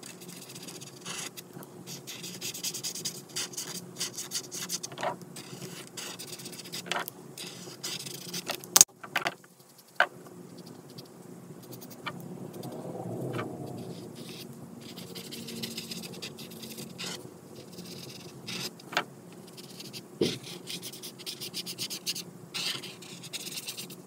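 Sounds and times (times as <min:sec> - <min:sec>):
marker scratching on paper: 0:00.0 - 0:08.5, 0:13.7 - 0:18.8, 0:19.4 - 0:24.0.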